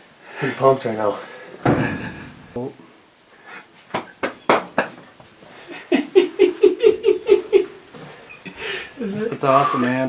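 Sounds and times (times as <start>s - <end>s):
sharp knocks: 1.6s - 2.4s
man laughing rhythmically: 5.7s - 7.9s.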